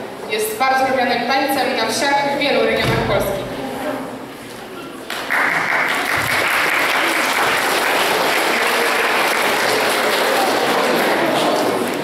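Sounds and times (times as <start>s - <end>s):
children clapping: 5.0s - 12.0s.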